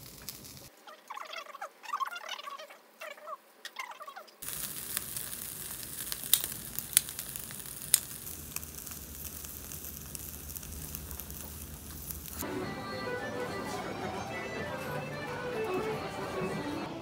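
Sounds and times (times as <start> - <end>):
meat sizzling on a grill: 0.0 - 0.7, 4.4 - 12.4
sharp pops and clicks: 4.4 - 12.4.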